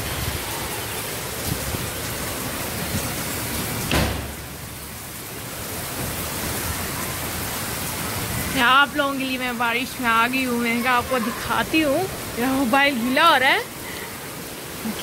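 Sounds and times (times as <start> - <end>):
heavy rain pouring: 0.0 - 15.0
knock with low boom: 3.9 - 4.4.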